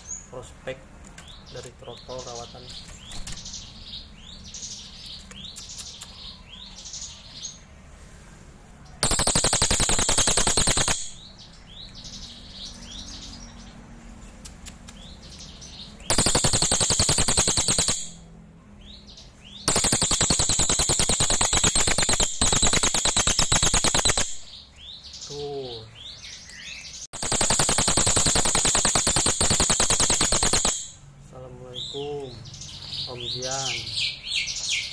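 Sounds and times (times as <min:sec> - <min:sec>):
bird giving rapid rattles: 0:02.7 - 0:03.6, 0:09.0 - 0:11.3, 0:16.0 - 0:18.2, 0:19.6 - 0:24.5, 0:27.1 - 0:31.0
faint rising chirps: 0:16.0 - 0:18.3.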